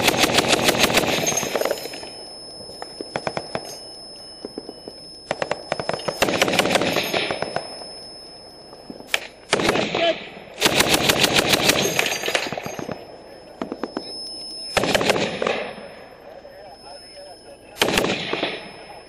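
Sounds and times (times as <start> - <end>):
automatic gunfire: 0.0 - 1.7, 5.3 - 7.5, 9.2 - 12.9, 14.8 - 15.7, 17.8 - 18.6
high-pitched whine: 0.0 - 19.0.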